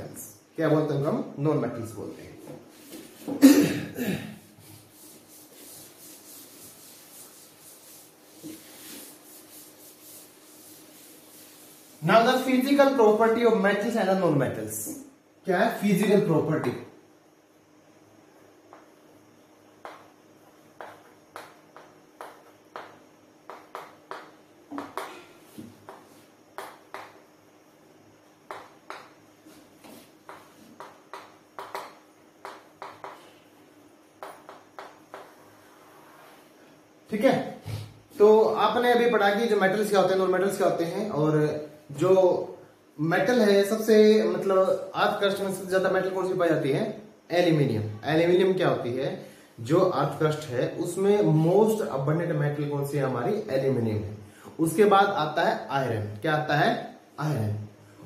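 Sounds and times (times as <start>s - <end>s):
chalk tapping and scraping on chalkboard: 2.4s - 3.4s, 4.4s - 12.7s, 19.8s - 20.2s, 20.8s - 27.2s, 28.5s - 33.4s, 34.2s - 36.4s
duster rubbing on chalkboard: 4.4s - 12.7s, 34.5s - 36.6s.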